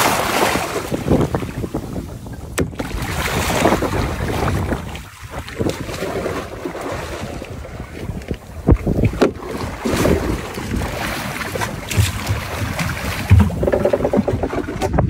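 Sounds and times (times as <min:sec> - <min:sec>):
water splashing against boat: 0:00.0 - 0:15.0
wind buffeting microphone: 0:00.0 - 0:15.0
sharp knocks: 0:11.9 - 0:15.0.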